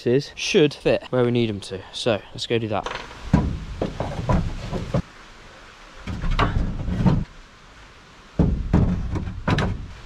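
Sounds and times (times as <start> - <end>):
wooden planks knocking: 2.8 - 5.1, 6.0 - 7.3, 8.4 - 10.0.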